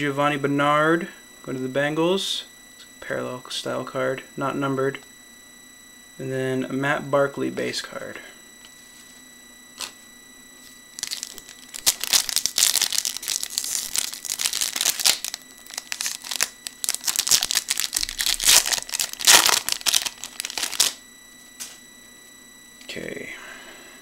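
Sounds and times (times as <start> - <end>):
computer fan whine: 0.0 - 24.0
wrapper tearing and crinkling: 11.0 - 21.0.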